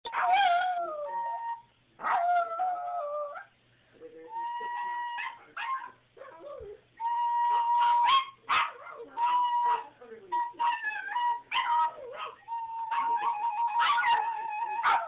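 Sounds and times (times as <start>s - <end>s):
dog whimpering: 8.9s - 15.0s
dog howling: 9.2s - 15.0s.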